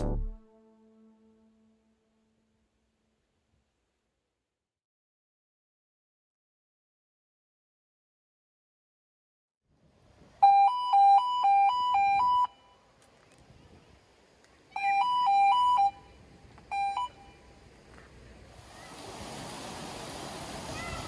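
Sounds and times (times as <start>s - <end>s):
two-tone electronic warning sounder: 10.4s - 12.8s, 14.8s - 16.1s, 16.7s - 17.4s.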